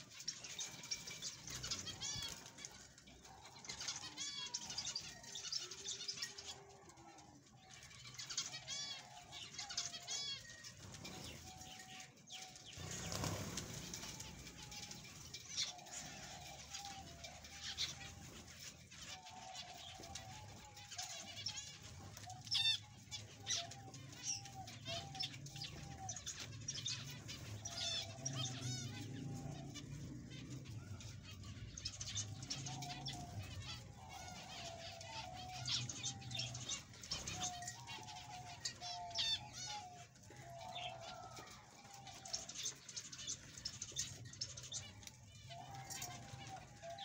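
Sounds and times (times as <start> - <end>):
wings fluttering: 12.7 - 24.3.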